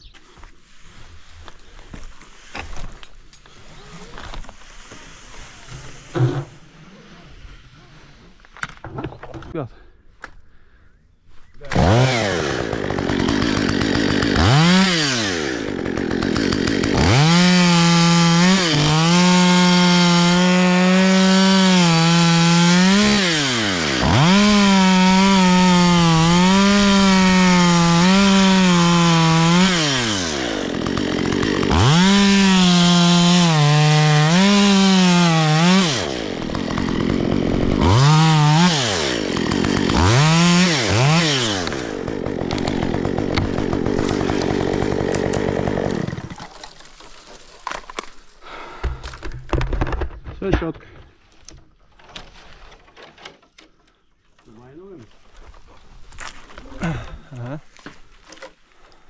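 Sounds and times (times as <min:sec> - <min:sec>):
chainsaw cutting wood: 0:11.6 - 0:50.3.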